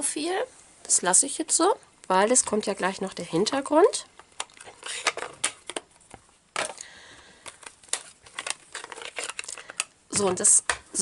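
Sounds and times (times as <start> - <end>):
plastic cases clicking and tapping: 4.2 - 11.0.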